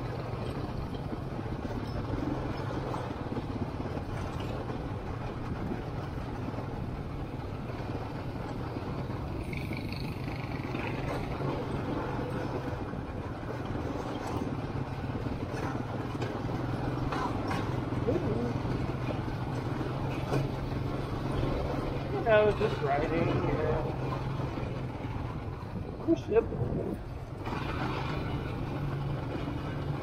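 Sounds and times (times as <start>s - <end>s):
atv engine running: 0.0s - 30.0s.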